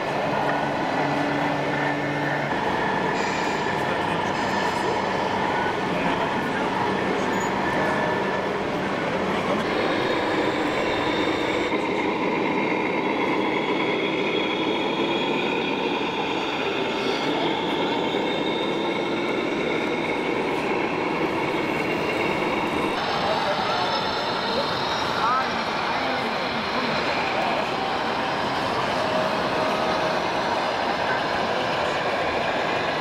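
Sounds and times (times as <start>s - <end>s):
faint high whines: 9.4s - 12.1s.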